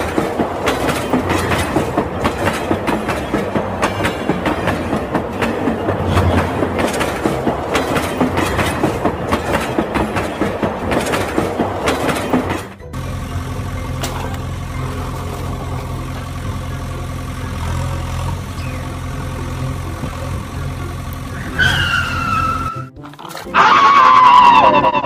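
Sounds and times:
heavy vehicle engine hum: 0:00.0 - 0:24.4
falling whistle-like tones: 0:21.4 - 0:22.9.

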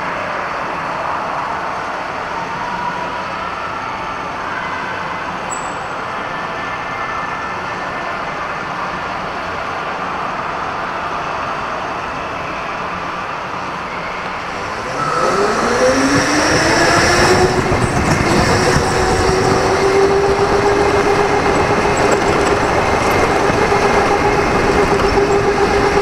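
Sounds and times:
go-kart running noise: 0:12.8 - 0:26.0
electric motor whine: 0:14.4 - 0:26.0.

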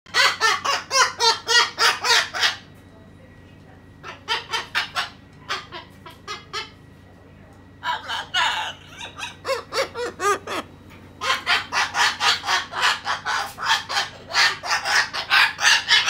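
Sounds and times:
person laughing: 0:08.9 - 0:10.6.

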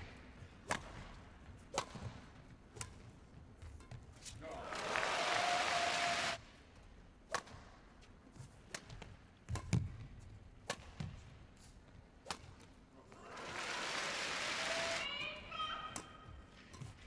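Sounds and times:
rackets striking shuttlecock: 0:00.6 - 0:01.1, 0:01.7 - 0:02.2, 0:07.3 - 0:07.7, 0:08.7 - 0:10.0
crowd applause: 0:04.5 - 0:06.4, 0:13.2 - 0:15.0.

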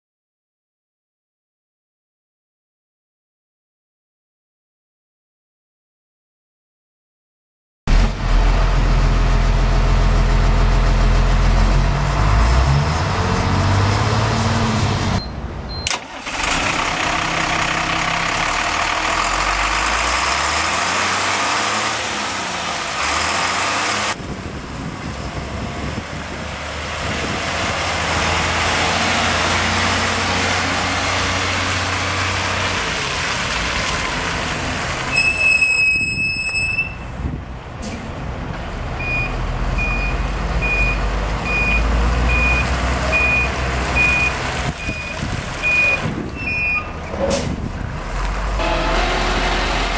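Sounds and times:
truck engine running: 0:07.9 - 0:35.9, 0:37.0 - 0:49.9
warning beeper short beeps: 0:35.1 - 0:37.0
long electronic beep: 0:35.2 - 0:37.0.

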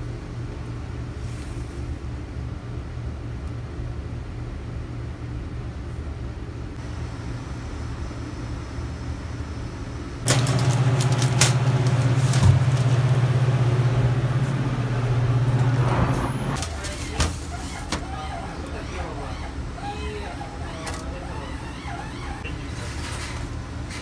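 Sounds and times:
refrigerator fan hum: 0:00.0 - 0:24.0
steady low hum: 0:00.0 - 0:24.0
items rattling on wire shelves: 0:10.3 - 0:13.2.

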